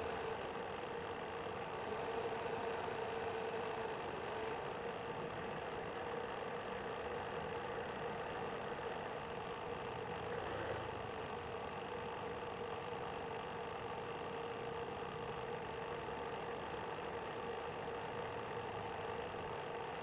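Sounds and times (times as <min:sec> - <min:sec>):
electric motor whine: 0:00.0 - 0:11.5.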